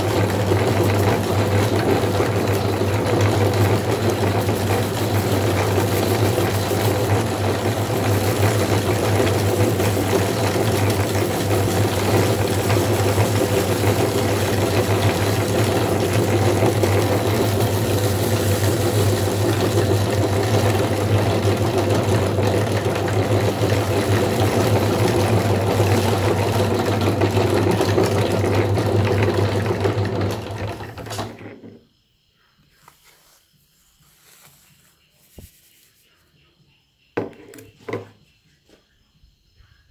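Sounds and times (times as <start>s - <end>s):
meat grinder motor humming: 0.0s - 31.6s
faint handling sounds: 32.6s - 36.4s.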